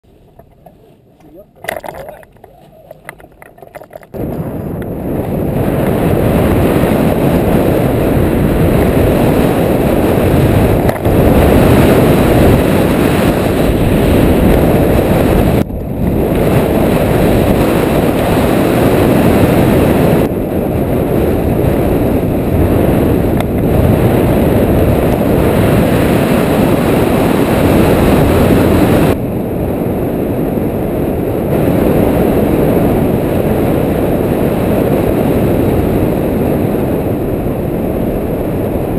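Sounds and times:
wind rushing over microphone: 0:00.0 - 0:38.9.

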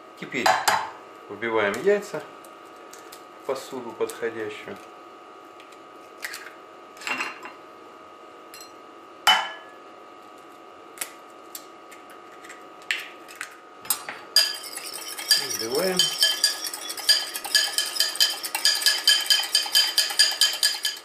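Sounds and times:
fork clinking against glass: 0:14.4 - 0:21.0.

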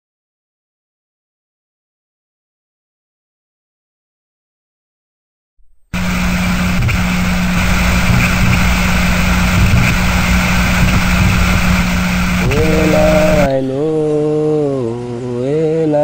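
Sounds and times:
low hum: 0:05.6 - 0:16.0
loud rush of noise: 0:06.0 - 0:15.2
person singing folk song: 0:12.4 - 0:16.0.

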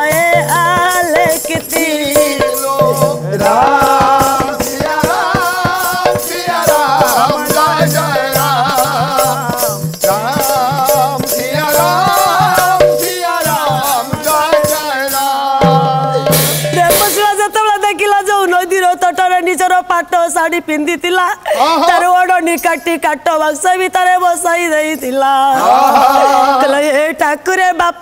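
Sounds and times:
fast jingling percussion: 0:00.0 - 0:17.7
woman singing: 0:00.0 - 0:28.0.

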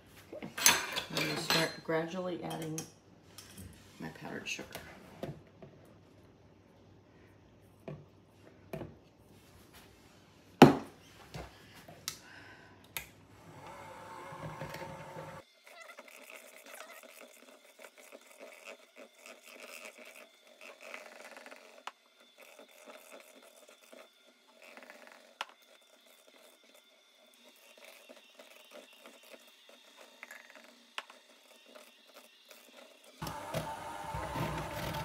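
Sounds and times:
electric hand mixer running: 0:13.3 - 0:15.4, 0:16.3 - 0:35.0.

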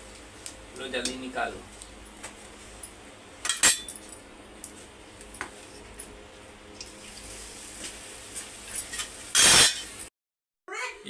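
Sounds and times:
hot oil sizzling: 0:06.7 - 0:10.1.

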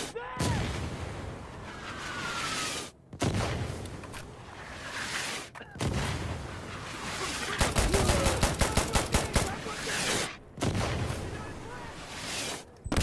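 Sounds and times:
automatic gunfire: 0:07.6 - 0:09.6.

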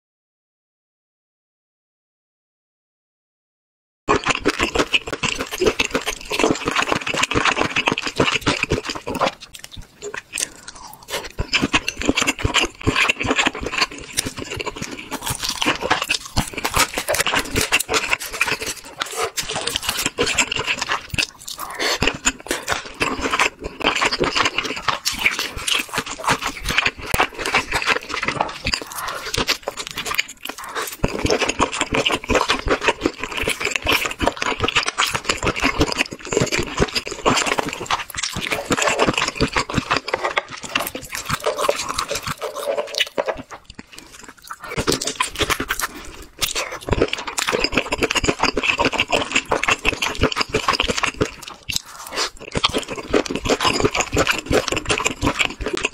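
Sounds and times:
chewing with mouth clicks: 0:04.1 - 0:55.9.

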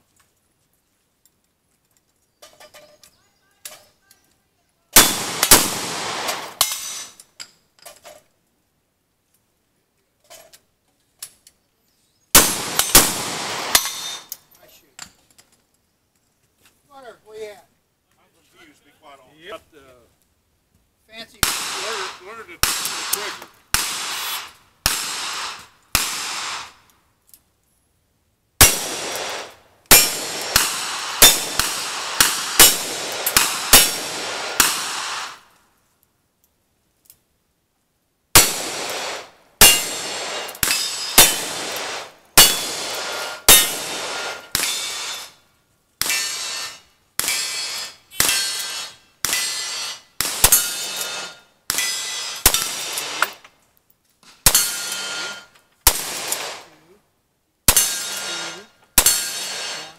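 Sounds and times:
gunshots: 0:05.0 - 0:07.2, 0:12.4 - 0:14.3, 0:21.3 - 0:26.8, 0:28.6 - 0:35.5, 0:38.4 - 0:45.3, 0:46.0 - 0:53.4, 0:54.4 - 0:56.8, 0:57.7 - 0:59.9
steel targets ringing: 0:39.6 - 0:40.0, 0:43.5 - 0:43.8, 0:46.0 - 0:53.0, 0:54.5 - 0:55.5, 0:57.7 - 0:59.9.

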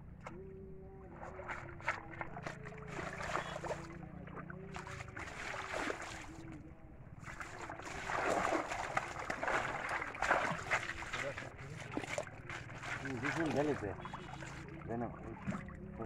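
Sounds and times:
steady low hum: 0:00.0 - 0:16.0
water streaming off a net: 0:07.4 - 0:14.7.

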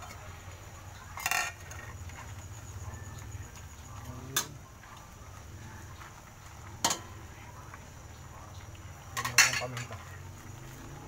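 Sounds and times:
saucer clattering on a wok: 0:06.8 - 0:07.1, 0:09.2 - 0:10.0.

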